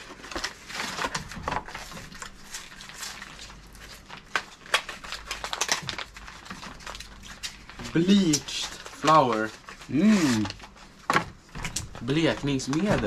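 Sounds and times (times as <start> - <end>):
packaging crinkling: 0.0 - 13.0.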